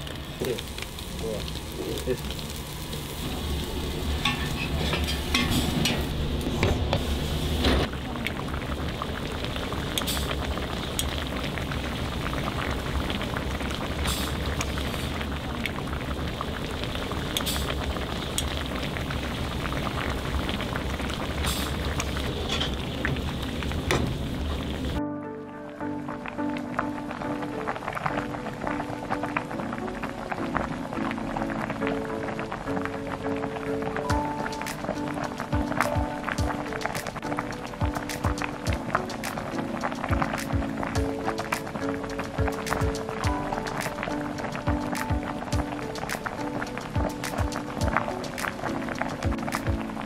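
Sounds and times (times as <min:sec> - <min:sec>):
omelette sizzling on griddle: 0:00.0 - 0:07.9, 0:08.7 - 0:25.0
stew boiling hard: 0:00.0 - 0:25.0, 0:26.7 - 0:50.0
metal spatula scraping and tapping: 0:04.2 - 0:06.0.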